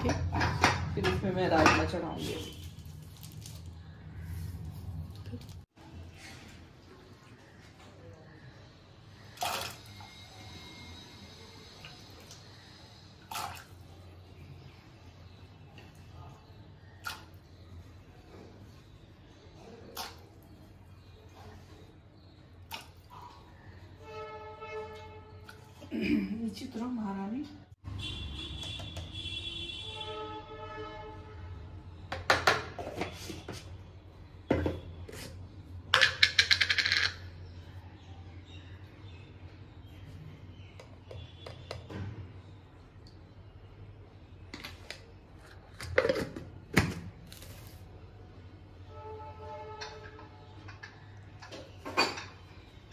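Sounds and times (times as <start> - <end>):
steel kitchenware clinking: 0.0 - 2.4.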